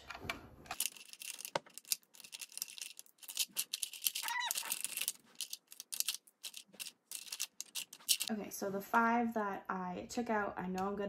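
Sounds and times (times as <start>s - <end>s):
pencils clattering in plastic holder: 0.7s - 8.3s.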